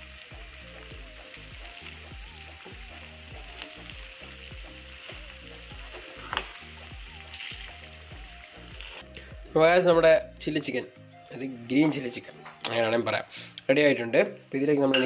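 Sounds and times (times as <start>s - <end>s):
chicken sizzling in a pan: 0.0s - 10.8s.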